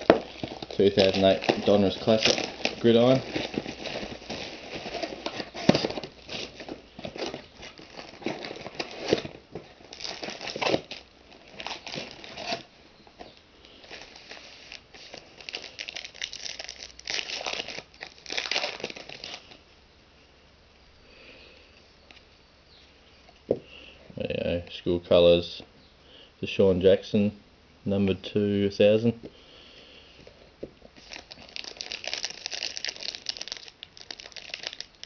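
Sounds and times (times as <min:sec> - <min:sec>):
foil packs crinkling: 0:00.0 - 0:19.6, 0:30.2 - 0:35.0.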